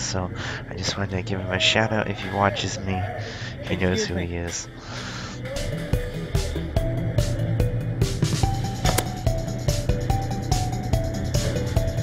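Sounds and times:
background music with drum beat: 8.0s - 12.0s.

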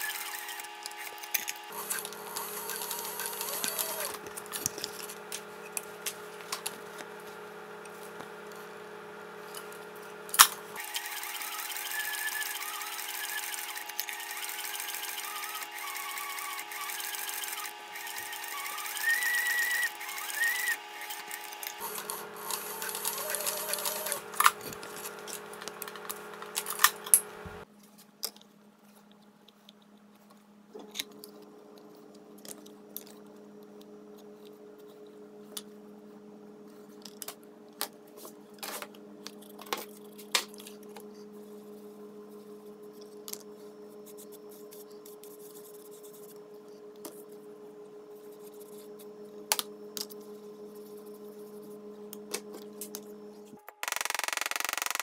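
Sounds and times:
sewing machine running: 0.0s - 5.2s, 10.3s - 27.6s, 53.8s - 55.0s.

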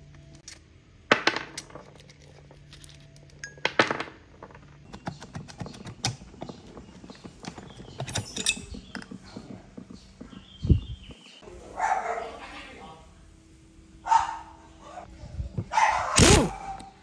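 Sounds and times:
metal clinks and knocks: 5.4s - 10.4s.

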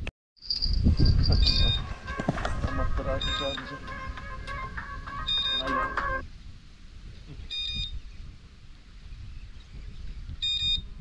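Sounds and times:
steady electronic tones: 1.2s - 6.2s
short high electronic beeps: 5.2s - 5.8s, 7.5s - 8.0s, 10.4s - 10.9s.

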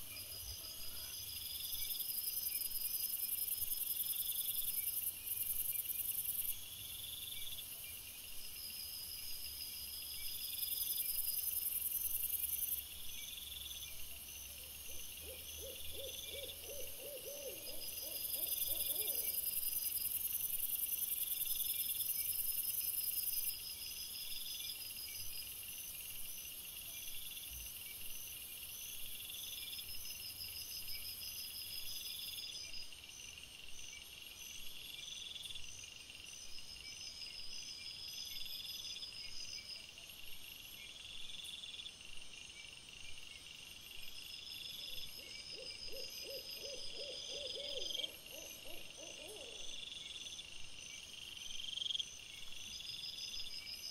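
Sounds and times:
low quavering hoot: 15.2s - 19.4s, 45.6s - 49.7s.

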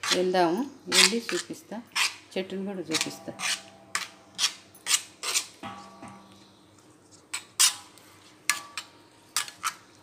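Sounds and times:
metal spoon scraping iron pan: 2.9s - 6.6s, 7.3s - 9.8s.

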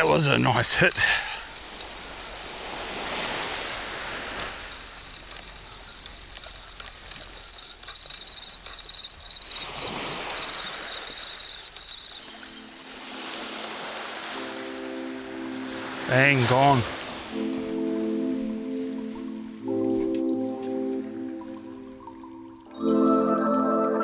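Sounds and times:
small waves washing on shore: 0.0s - 23.0s
faint high chirring tone: 7.5s - 24.0s
background music: 12.4s - 24.0s.

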